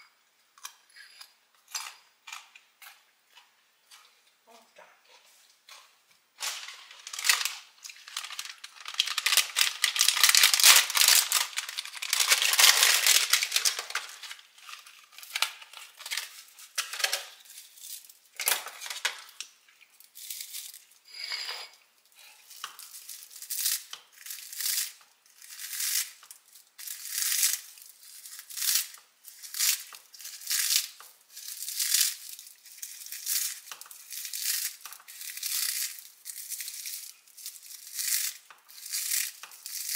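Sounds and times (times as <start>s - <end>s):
loud crinkling and rustling: 6.4s - 19.3s.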